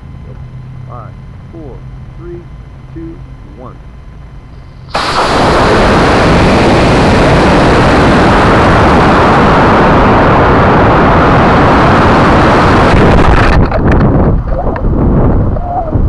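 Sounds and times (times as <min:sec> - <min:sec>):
rocket motor rushing: 0:04.4 - 0:15.4.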